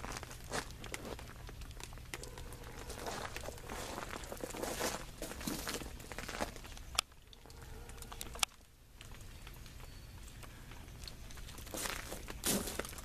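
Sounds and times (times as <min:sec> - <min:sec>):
icy precipitation pattering on ice: 0:00.0 - 0:13.0
ice crunch: 0:02.2 - 0:06.7, 0:11.4 - 0:13.0.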